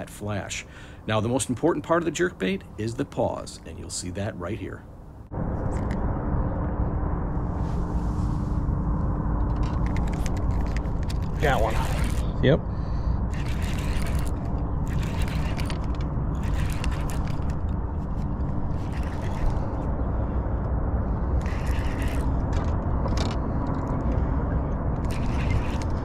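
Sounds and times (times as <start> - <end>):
low rumble: 4.9 - 26.0
fishing reel clicking: 13.3 - 17.6, 18.7 - 19.6, 21.4 - 22.3, 25.0 - 25.9.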